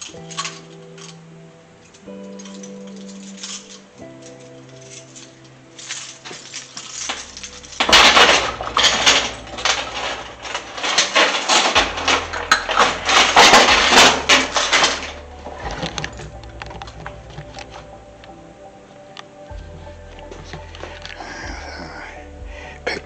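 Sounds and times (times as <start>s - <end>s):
coins clattering and jingling: 0.0s - 1.2s, 2.2s - 17.9s.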